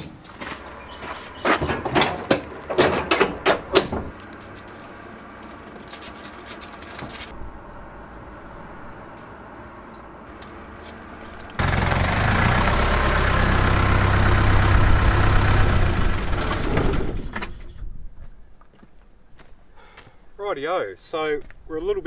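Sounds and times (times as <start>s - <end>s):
diesel engine idling: 0.6s - 2.7s, 7.4s - 17.0s.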